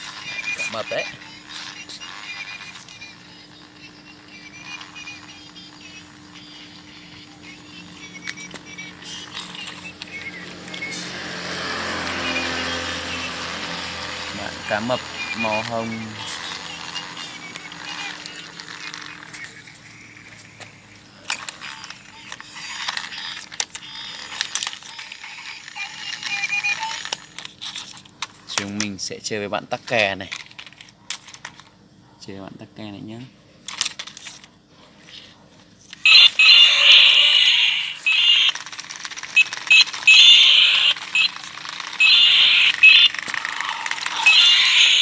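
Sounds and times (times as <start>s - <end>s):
short high electronic tone: 4.3s - 20.1s, 36.1s - 38.6s, 39.2s - 45.0s
plastic toy clicking and ratcheting: 21.3s - 28.9s, 35.9s - 45.0s.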